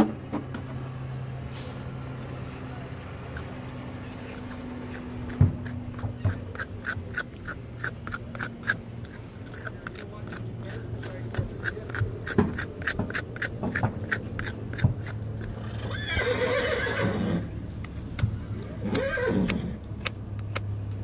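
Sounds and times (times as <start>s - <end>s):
horse whinnying: 15.6s - 17.5s, 18.8s - 19.8s.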